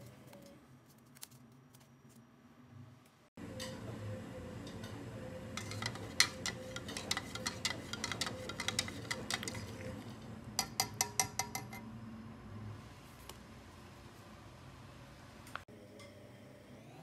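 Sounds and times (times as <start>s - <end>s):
spoon clinking in plastic cup: 5.6s - 9.9s, 10.6s - 11.8s.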